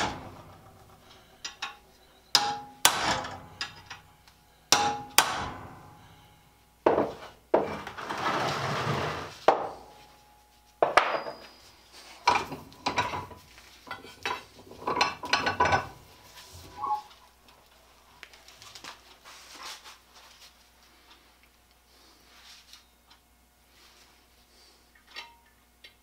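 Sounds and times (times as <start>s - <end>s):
metal scraping: 7.2s - 9.5s.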